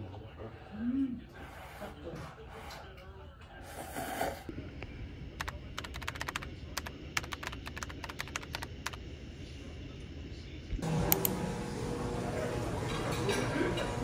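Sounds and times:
room ambience: 0.0 - 14.0
keyboard typing: 5.4 - 9.0.

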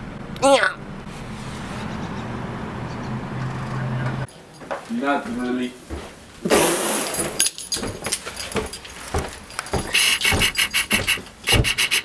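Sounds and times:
rattling jangle: 7.1 - 11.2
handling knocks: 7.7 - 11.8.

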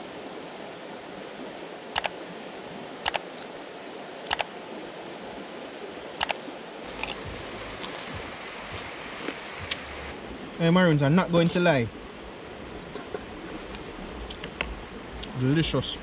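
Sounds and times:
river flowing over rocks: 0.0 - 16.0
sharp double clicks: 4.3 - 4.5.

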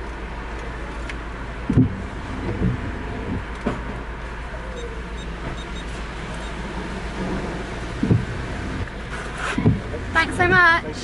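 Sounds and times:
car engine idling: 0.0 - 11.0
soft knocks: 8.0 - 8.4, 9.6 - 10.0.

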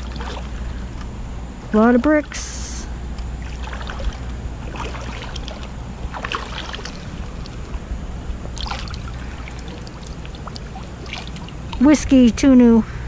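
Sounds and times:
water splashing while wading: 0.0 - 0.7, 3.4 - 7.9, 8.5 - 11.9
steady low rumble: 0.0 - 13.0.

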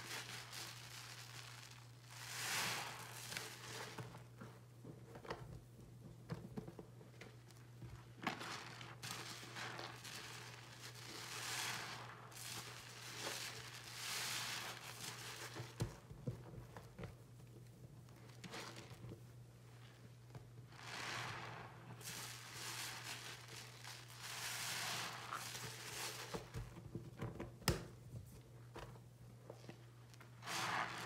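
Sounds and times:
fizzing foam: 0.0 - 4.1, 20.7 - 26.6, 30.4 - 31.0
sponge squishing in soapy water: 0.0 - 27.2, 27.9 - 31.0.

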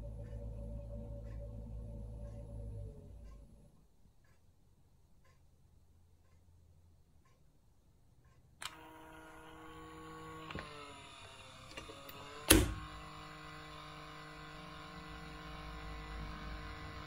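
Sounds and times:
dishwasher door opener hum: 11.7 - 12.9.

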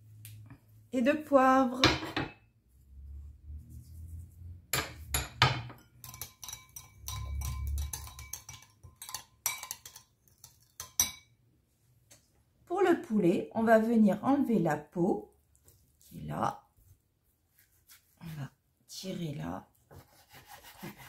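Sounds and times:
spoon clinking against glass bowl: 4.8 - 11.4.

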